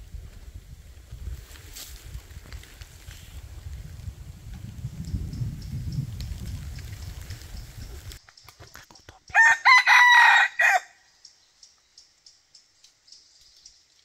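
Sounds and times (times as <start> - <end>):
rooster crowing: 9.3 - 11.1.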